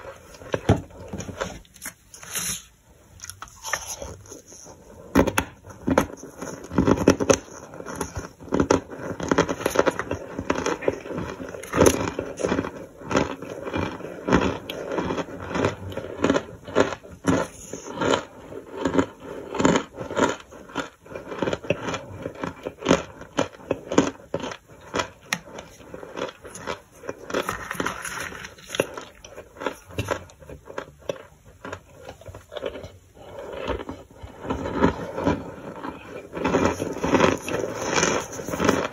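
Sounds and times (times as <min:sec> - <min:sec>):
plastic spoon scraping a tub: 0:00.0 - 0:02.8, 0:03.4 - 0:16.0, 0:25.2 - 0:30.8, 0:32.1 - 0:38.9
crunchy food chewing: 0:00.0 - 0:38.9.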